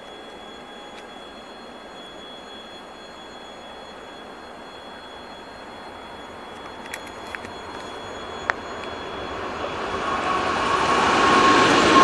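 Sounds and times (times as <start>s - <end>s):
distant diesel locomotive rumble: 0.0s - 12.0s
sharp clicks: 6.5s - 9.0s.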